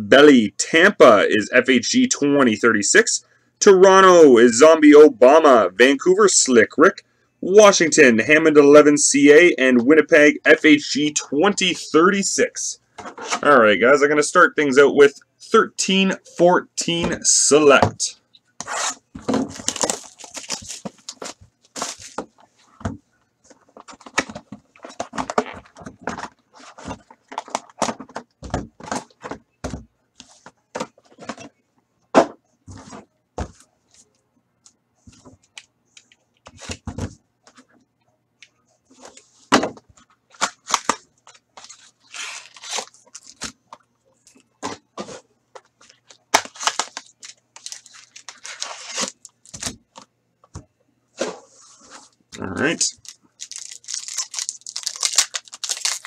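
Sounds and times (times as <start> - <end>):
wrapper and cardboard crinkling: 19.5 - 22.2, 40.4 - 43.6, 45.9 - 49.8, 52.8 - 56.0.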